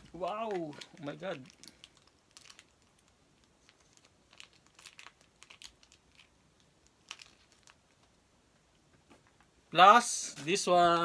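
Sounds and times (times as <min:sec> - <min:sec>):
plastic sachet crinkling: 0:00.0 - 0:08.2.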